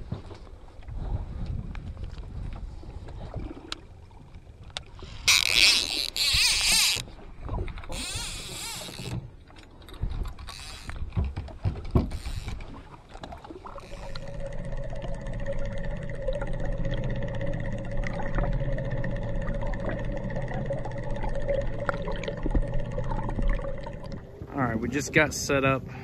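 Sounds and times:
water sloshing against boat: 0.0s - 15.6s
underwater motor whine and hum: 0.0s - 26.0s
water rushing underwater: 12.7s - 25.2s.

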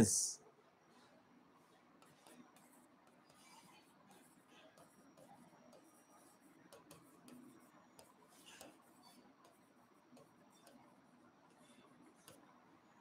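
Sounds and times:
stylus ticking on touchscreen: 4.8s - 8.2s.

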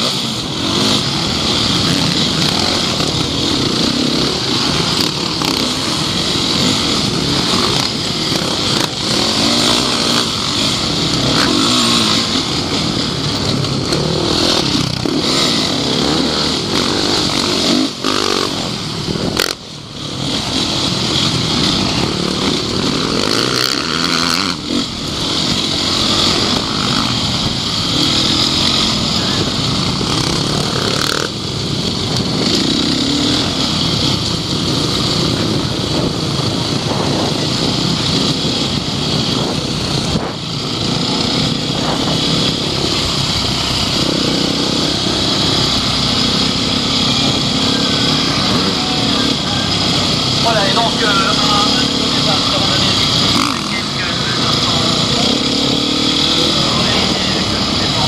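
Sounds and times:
motorcycle engine revving: 0.0s - 58.0s
wind on microphone: 33.7s - 44.1s.

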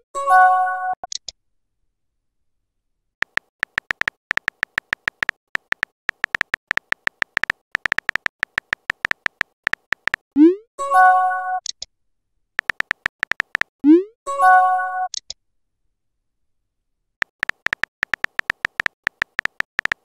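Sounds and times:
keyboard tap clicks: 3.2s - 10.2s, 12.6s - 13.7s, 17.2s - 20.0s.

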